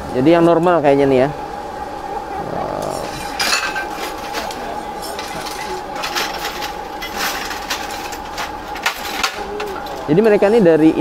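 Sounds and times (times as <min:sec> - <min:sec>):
steady high hum: 0:00.0 - 0:11.0
background chatter: 0:00.2 - 0:11.0
metal utensils clinking on griddle: 0:03.0 - 0:10.0.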